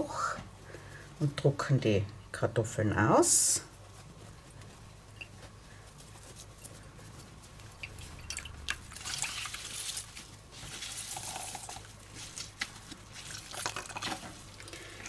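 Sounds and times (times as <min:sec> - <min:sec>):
juice trickling into a glass bowl: 0:07.8 - 0:11.9, 0:13.2 - 0:15.0.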